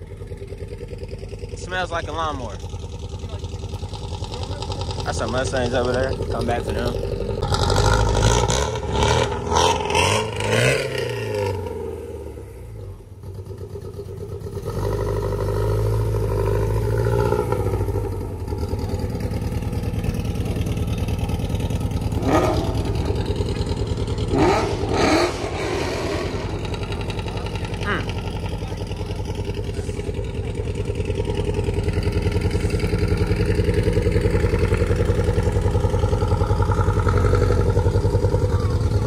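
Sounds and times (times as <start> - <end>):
car engine running: 0.0 - 39.0
indistinct voices: 22.2 - 31.2.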